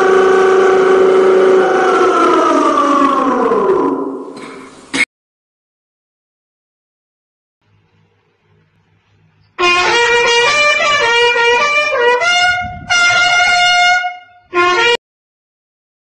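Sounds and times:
trumpet call: 0.0s - 4.3s, 9.6s - 15.0s.

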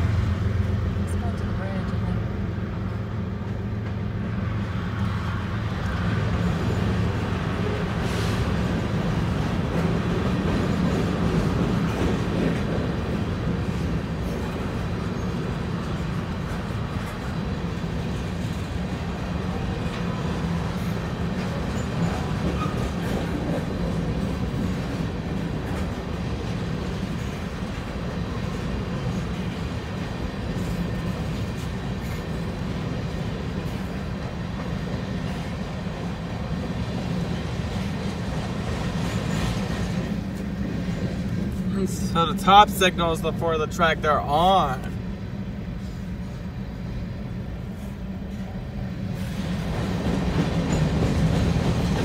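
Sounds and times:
freight train wheels rumbling: 0.0s - 52.0s.

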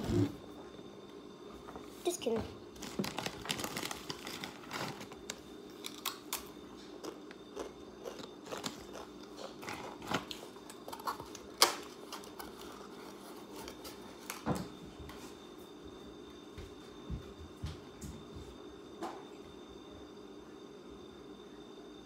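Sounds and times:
faint steady hum: 0.0s - 22.0s
child crunching a crisp snack: 2.8s - 13.9s.

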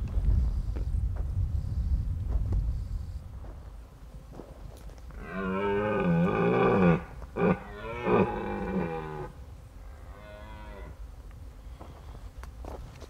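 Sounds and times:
deer stag roaring: 5.2s - 9.4s.

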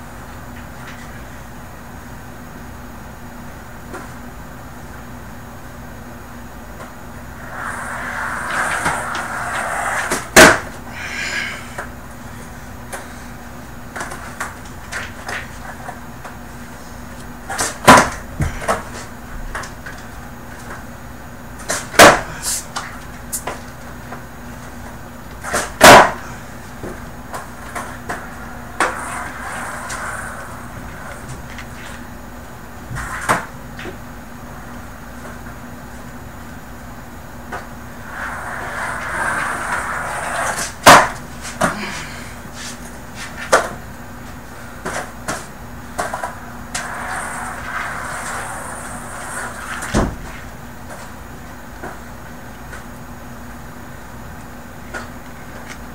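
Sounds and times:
skateboard rolling: 7.2s - 10.9s, 26.8s - 32.2s, 32.9s - 33.5s, 37.5s - 41.7s, 46.0s - 51.0s
skateboard clacking on floor: 7.4s - 10.8s, 25.4s - 26.2s, 26.8s - 32.0s, 37.5s - 41.8s, 44.8s - 51.1s
skateboard deck and wheel knocks: 7.8s - 10.8s, 17.5s - 18.8s, 21.6s - 22.3s, 25.4s - 26.2s, 26.8s - 31.6s, 37.5s - 41.8s.

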